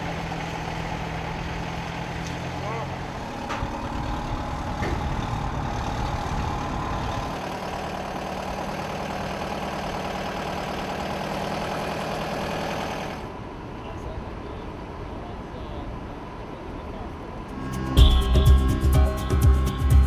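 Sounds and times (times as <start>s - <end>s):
tow tractor engine running: 0.0s - 20.0s
higher hum: 17.5s - 20.0s.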